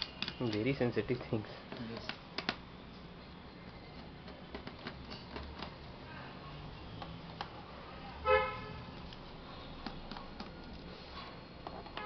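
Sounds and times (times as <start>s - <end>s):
vehicle horn toot: 8.2s - 8.8s.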